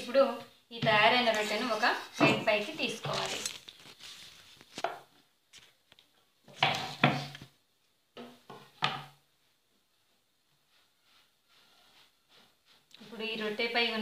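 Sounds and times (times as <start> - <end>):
kitchen utensils scraping: 1.1 - 3.6.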